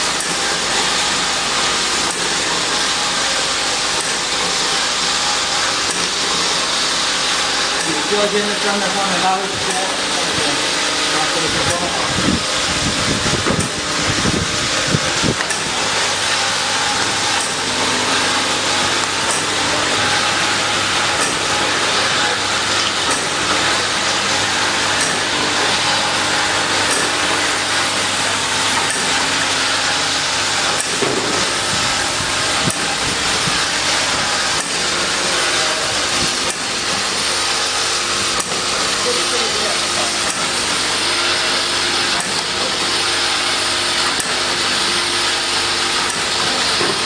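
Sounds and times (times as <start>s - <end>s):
machine whirring and hissing: 0.0s - 47.0s.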